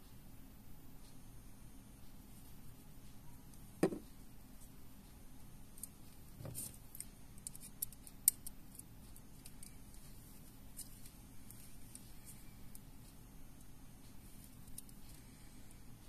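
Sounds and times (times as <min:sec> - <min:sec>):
soft bump: 0:03.8 - 0:04.1.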